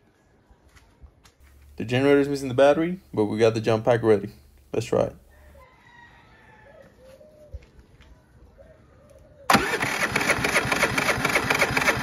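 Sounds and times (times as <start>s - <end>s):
generator engine cranking: 9.5s - 12.0s.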